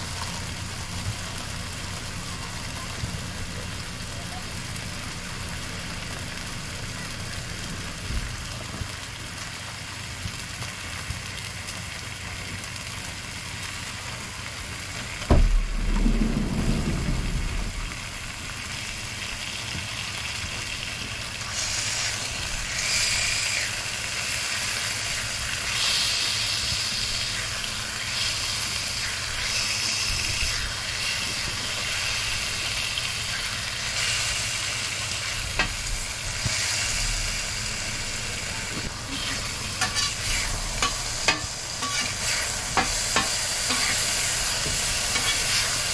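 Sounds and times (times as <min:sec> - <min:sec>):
bacon sizzling on a griddle: 0:00.0 - 0:45.9
loud thump: 0:15.3 - 0:18.2
metal spatula turning bacon: 0:39.1 - 0:45.9.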